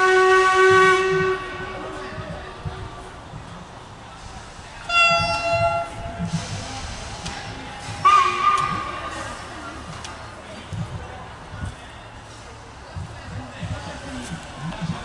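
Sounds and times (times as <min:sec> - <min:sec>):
steam locomotive whistle: 0:00.0 - 0:01.9, 0:04.9 - 0:06.2, 0:08.0 - 0:09.0.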